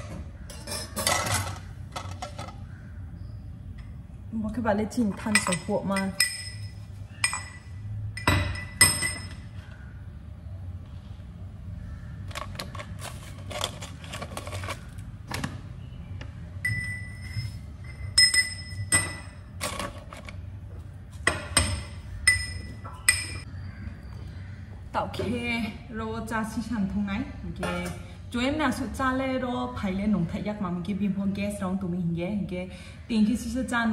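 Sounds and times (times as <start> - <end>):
pestle clinking in metal mortar: 5.2 - 9.4, 16.6 - 19.8, 21.3 - 23.4.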